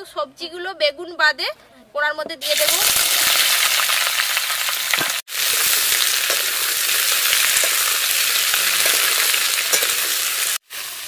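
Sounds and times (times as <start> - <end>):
vegetables sizzling in hot oil: 2.4 - 11.0.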